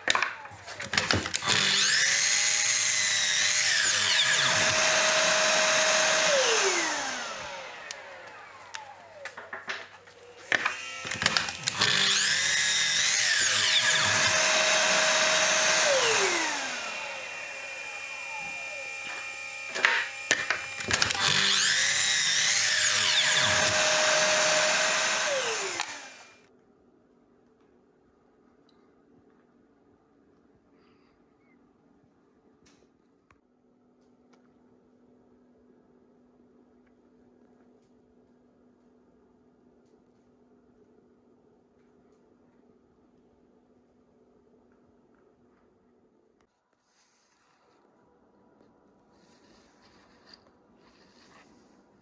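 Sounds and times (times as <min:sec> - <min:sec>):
saw blade cutting wood: 0:00.3 - 0:09.2, 0:10.4 - 0:26.4
miter saw motor whine: 0:00.4 - 0:09.3, 0:10.3 - 0:26.4.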